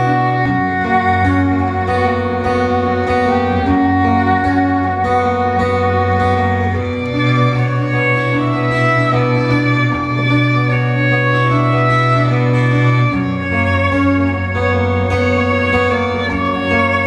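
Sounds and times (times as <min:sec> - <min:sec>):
low bass note: 0:00.0 - 0:11.7
strummed acoustic guitar: 0:00.0 - 0:17.0
violin melody: 0:00.0 - 0:17.0.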